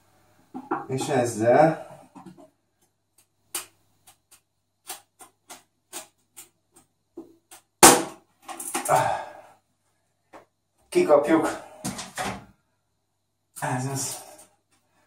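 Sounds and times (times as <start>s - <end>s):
hand tool tapping toilet cistern: 0.5s - 1.1s.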